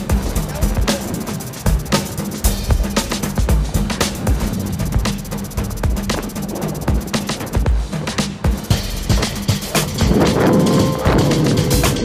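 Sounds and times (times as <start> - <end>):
deep bass line: 0.0 - 12.0
heavy drum beat: 0.0 - 12.0.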